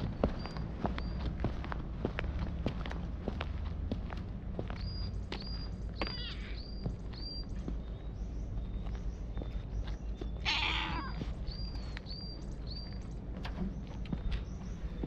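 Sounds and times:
cat meowing: 6.0 - 6.7, 10.4 - 11.3.

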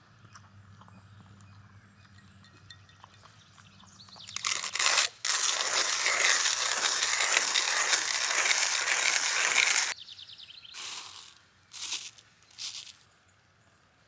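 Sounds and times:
grounds rustling into paper filter: 4.3 - 10.0, 10.8 - 13.0
manual coffee grinder grinding: 4.3 - 10.0, 10.8 - 12.9.

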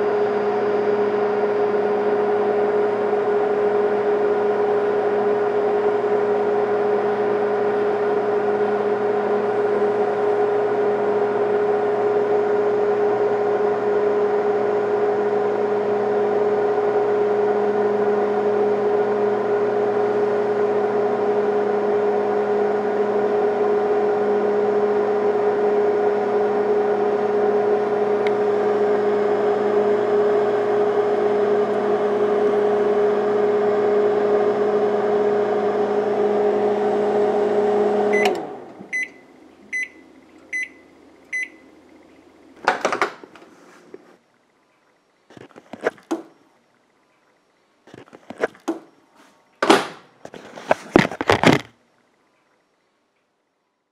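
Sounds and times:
microwave oven humming: 0.0 - 43.1
microwave shutting off click: 27.6 - 32.6, 35.9 - 41.6
microwave beeps: 38.1 - 41.7.

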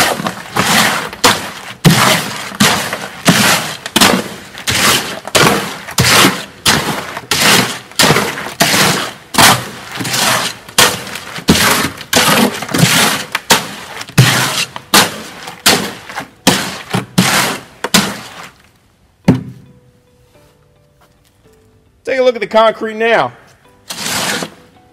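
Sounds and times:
blade scraping wet concrete: 0.0 - 18.6, 23.9 - 24.7.

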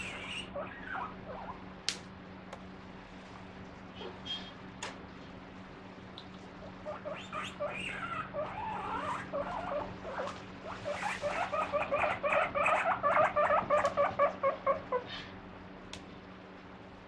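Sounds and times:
guinea pig squealing: 0.0 - 1.7, 6.6 - 15.1.

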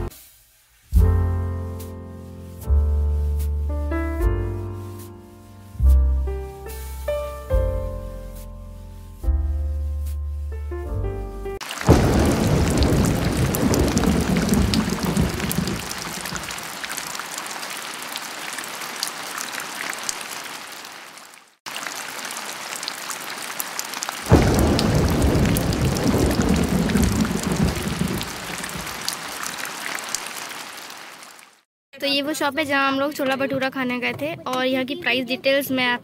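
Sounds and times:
heavy rain drumming on car roof: 11.6 - 20.3, 21.7 - 31.2.

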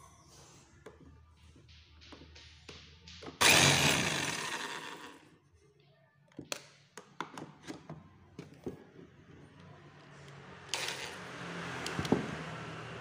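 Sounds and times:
demolition hammer motor burst: 3.4 - 5.2.

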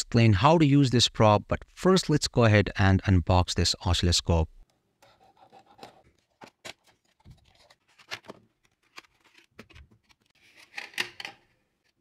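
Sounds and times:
packaging rustling: 5.3 - 10.8.

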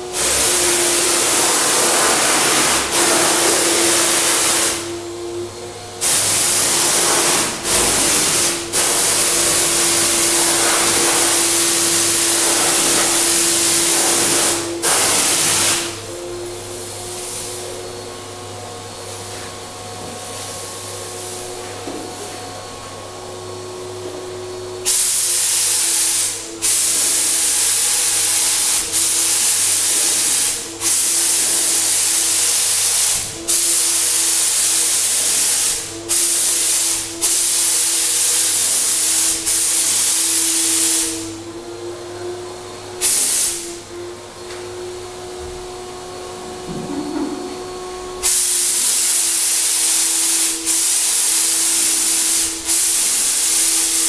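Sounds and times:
spray gun hissing: 0.0 - 5.0, 6.0 - 16.0, 24.8 - 41.4, 43.0 - 43.7, 48.2 - 54.0
turbine running: 0.0 - 25.2, 38.4 - 54.0.

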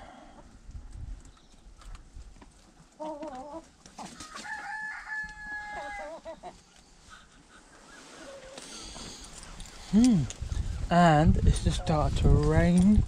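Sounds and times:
rooster crowing: 4.2 - 6.3.

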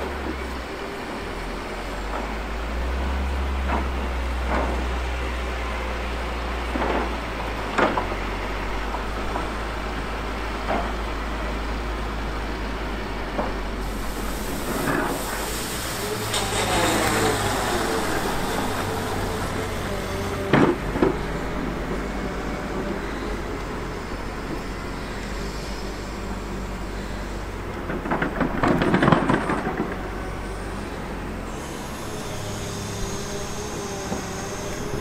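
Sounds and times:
diesel engine running: 0.0 - 35.0
brief squeal: 14.0 - 20.5.

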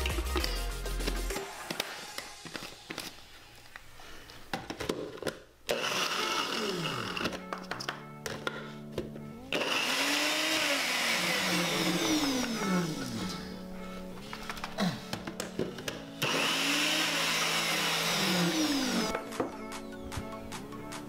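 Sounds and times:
background music: 0.0 - 21.0
blender motor whirring: 5.7 - 7.4, 9.4 - 13.4, 16.2 - 19.1.

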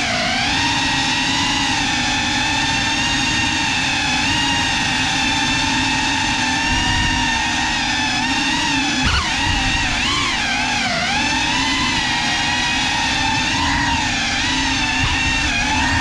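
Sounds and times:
drone propellers whining: 0.0 - 16.0.

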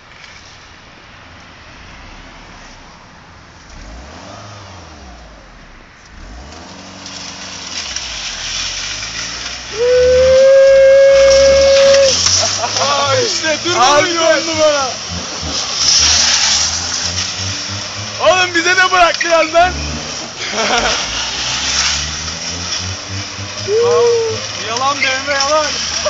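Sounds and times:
car engine revving: 0.0 - 26.0
tyres squealing: 6.6 - 26.0.

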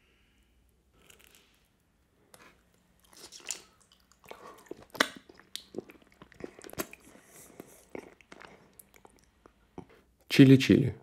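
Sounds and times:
wet chewing and mouth smacks: 2.3 - 9.9.

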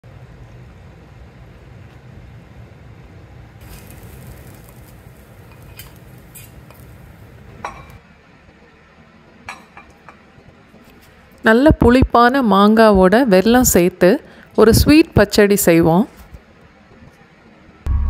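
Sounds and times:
sizzling hiss: 3.6 - 8.0
low hum: 17.8 - 18.0.

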